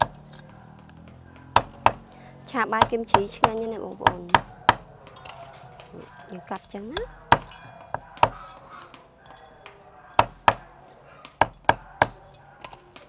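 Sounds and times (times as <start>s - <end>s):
cleaver chopping on wooden block: 1.4s - 2.1s, 2.7s - 4.9s, 7.0s - 8.4s, 10.2s - 10.7s, 11.3s - 12.2s.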